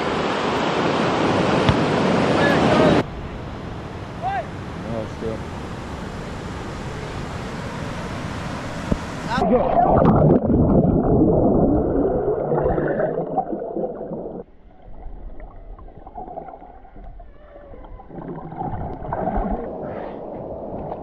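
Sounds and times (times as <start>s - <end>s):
muffled underwater churning water: 9.3s - 21.0s.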